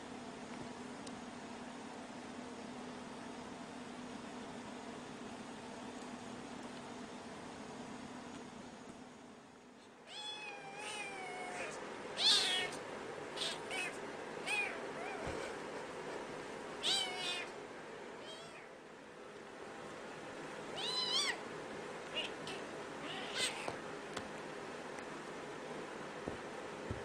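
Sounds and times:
cat meowing: 0:10.1 - 0:12.8, 0:13.4 - 0:15.3, 0:16.8 - 0:17.5, 0:18.2 - 0:18.7, 0:20.8 - 0:21.4, 0:22.1 - 0:23.8.

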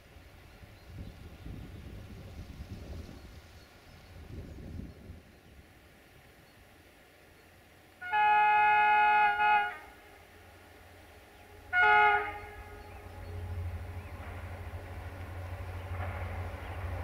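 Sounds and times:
low locomotive engine rumble: 0:00.0 - 0:17.0
locomotive horn blast: 0:08.0 - 0:17.0.

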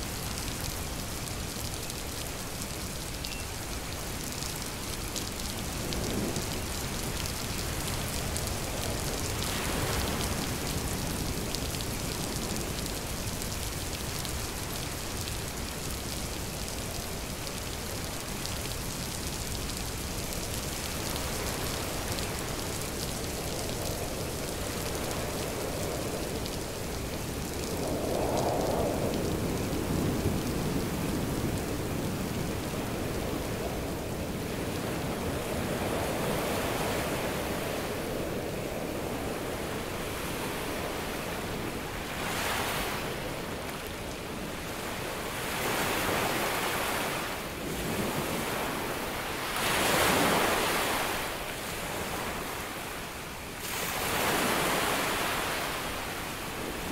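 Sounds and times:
rain: 0:00.0 - 0:56.9
wind: 0:00.0 - 0:56.9
ocean waves washing in: 0:23.7 - 0:56.9.

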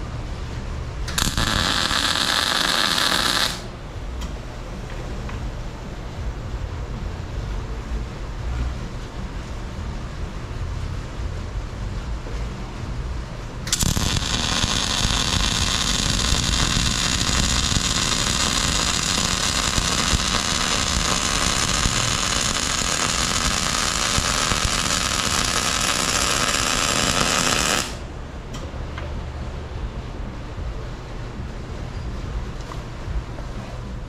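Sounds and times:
welding arc burning: 0:01.1 - 0:03.7, 0:13.7 - 0:28.1
low engine rumble: 0:03.6 - 0:34.0.

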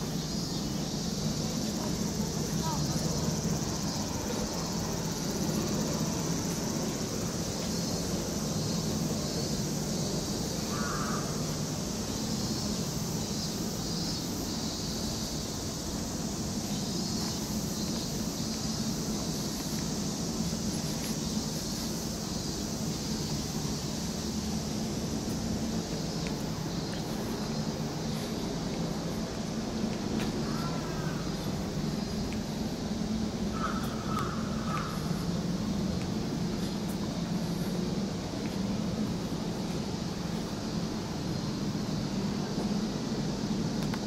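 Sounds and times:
pulsing insect drone: 0:00.0 - 0:44.0.

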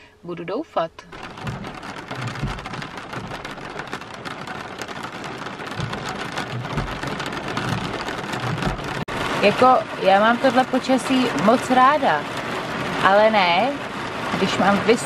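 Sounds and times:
low thuds: 0:01.1 - 0:09.4
rain pattering on glass sunroof: 0:01.1 - 0:15.0.

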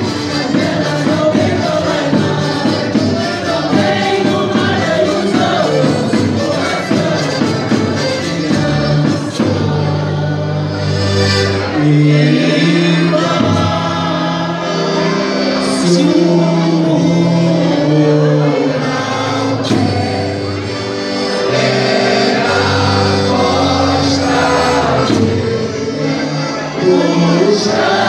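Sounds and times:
folk dance music with singing: 0:00.0 - 0:28.0.

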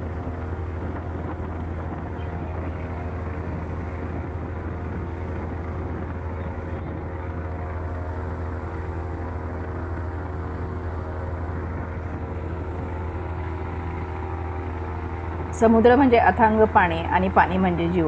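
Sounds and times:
ferry engine humming: 0:00.0 - 0:18.0.

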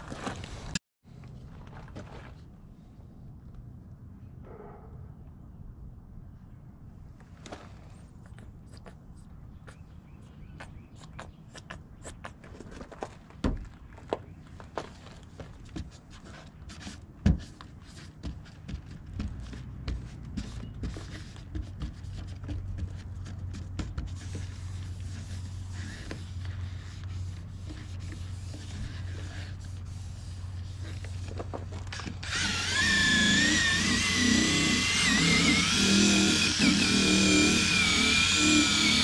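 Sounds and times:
handling and rubbing noises: 0:07.1 - 0:32.2
drill motor whine: 0:32.2 - 0:39.0.

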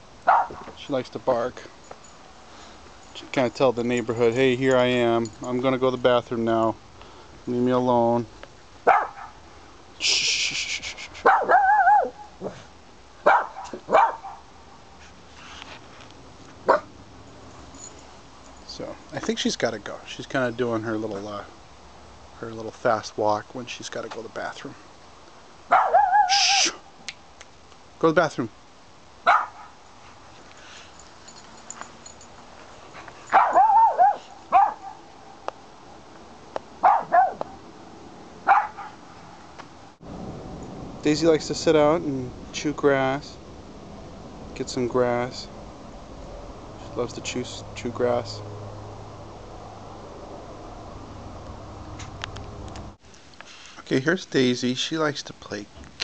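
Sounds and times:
dog barking: 0:00.3 - 0:00.7, 0:08.8 - 0:09.4, 0:11.2 - 0:14.5, 0:16.6 - 0:16.9, 0:25.7 - 0:26.8, 0:29.2 - 0:29.8, 0:33.3 - 0:35.1, 0:36.8 - 0:37.5, 0:38.4 - 0:39.0.

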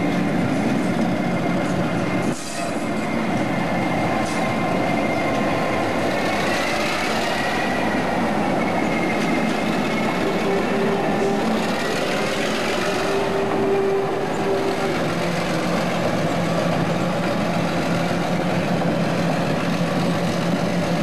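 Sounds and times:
diesel locomotive engine running: 0:00.0 - 0:21.0.

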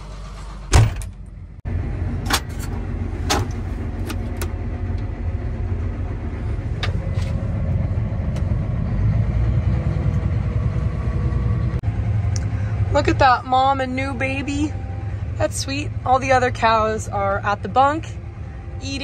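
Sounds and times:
tractor engine running: 0:00.0 - 0:19.0.

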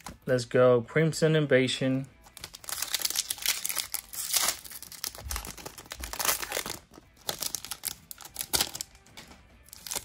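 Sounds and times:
foil wrapper tearing and crinkling: 0:02.2 - 0:09.0, 0:09.6 - 0:10.0.

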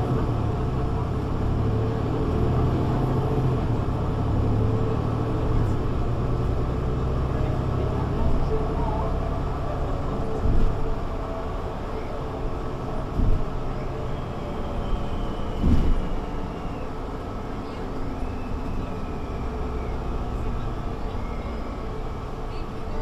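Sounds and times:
bus engine rumble: 0:00.0 - 0:23.0
loud thumps: 0:15.6 - 0:16.1.

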